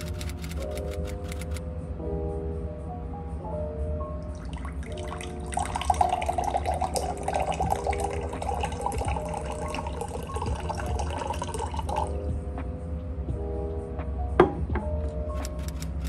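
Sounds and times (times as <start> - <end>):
water pouring into a glass: 4.4 - 12.2.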